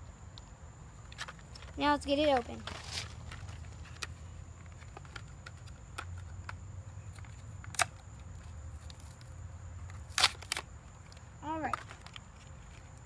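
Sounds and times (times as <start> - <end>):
blister pack crinkling and crackling: 7.1 - 13.0.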